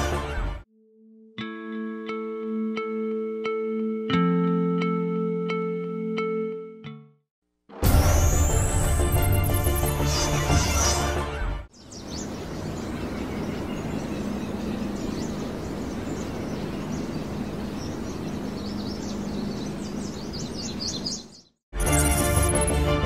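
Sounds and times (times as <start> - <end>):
birds chirping: 9.8 - 21.6.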